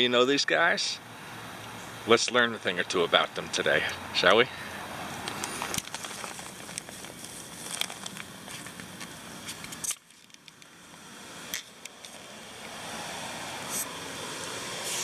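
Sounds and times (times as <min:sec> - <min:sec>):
steady hiss: 0:02.0 - 0:15.0
camera handling crackles and clicks: 0:05.2 - 0:10.7.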